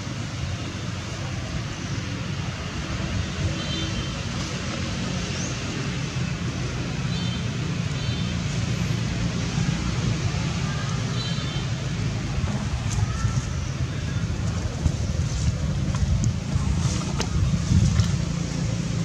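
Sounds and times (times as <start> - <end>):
steady low rumble: 12.1 - 19.0.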